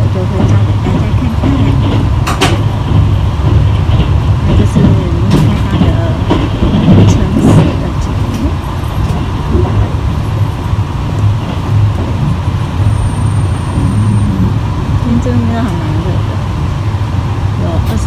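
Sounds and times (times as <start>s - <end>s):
train running rumble: 0.0s - 18.0s.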